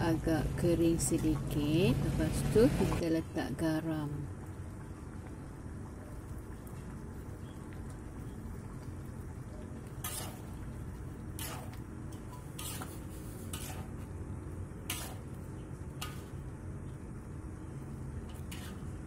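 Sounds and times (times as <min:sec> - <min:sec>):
steady low hum: 0:00.0 - 0:19.0
metal ladle scraping a wok: 0:10.0 - 0:10.6, 0:11.3 - 0:14.1, 0:14.8 - 0:15.4, 0:18.3 - 0:19.0.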